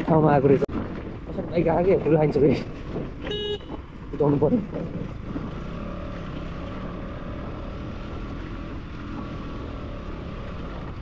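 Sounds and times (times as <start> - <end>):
motorcycle engine running: 4.6 - 11.0.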